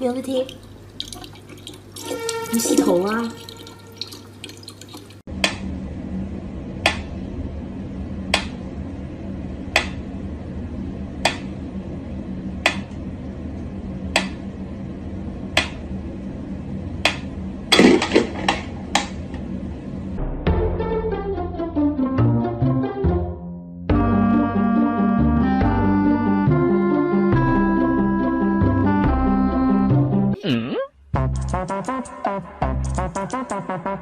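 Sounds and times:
steady low hum: 0:05.2 - 0:20.5.

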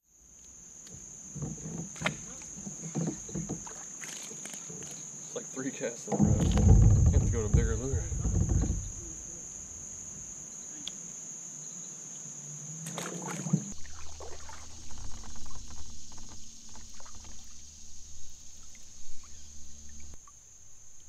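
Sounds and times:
insects droning: 0:00.0 - 0:21.0
water dripping off paddle blades: 0:00.4 - 0:05.4, 0:06.0 - 0:09.9, 0:12.9 - 0:21.0
paddle dipping and splashing: 0:01.1 - 0:05.2, 0:06.1 - 0:09.9, 0:12.8 - 0:21.0.

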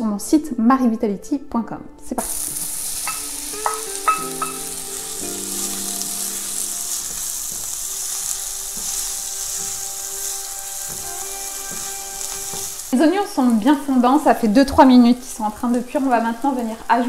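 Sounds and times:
onions sizzling in a pan: 0:02.2 - 0:17.0
wooden spatula stirring: 0:05.6 - 0:13.7.

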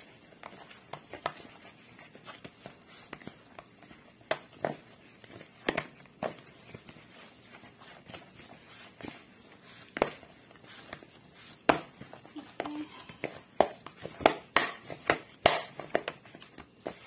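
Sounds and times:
dough thumps and slaps in bowl: 0:02.1 - 0:07.0, 0:09.8 - 0:17.0.

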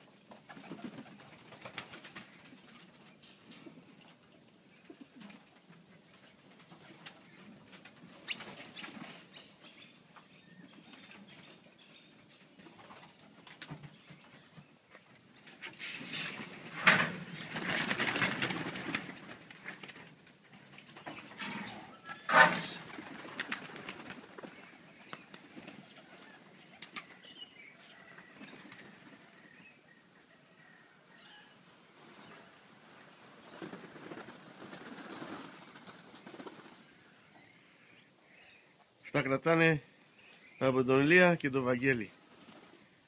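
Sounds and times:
pigeon wings flapping: 0:00.4 - 0:02.8, 0:16.3 - 0:20.0, 0:22.7 - 0:25.9, 0:33.5 - 0:36.8.

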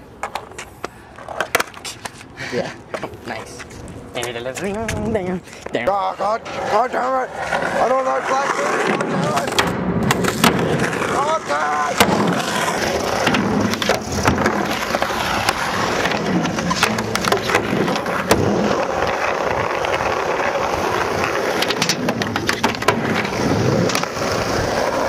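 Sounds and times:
skateboard wheels rolling on asphalt: 0:00.0 - 0:25.0
skateboard clacks: 0:06.5 - 0:25.0.

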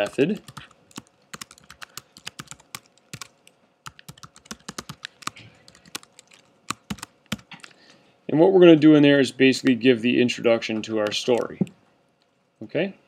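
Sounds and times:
computer keyboard typing: 0:00.0 - 0:07.7, 0:11.0 - 0:11.6.

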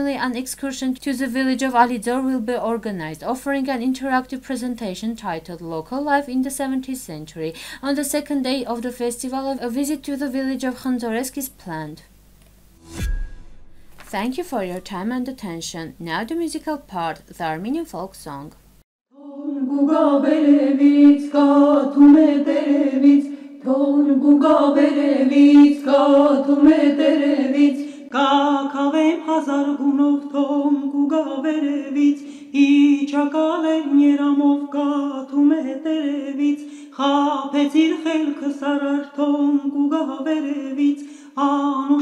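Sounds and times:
vocal ensemble singing folk song: 0:19.2 - 0:42.0.

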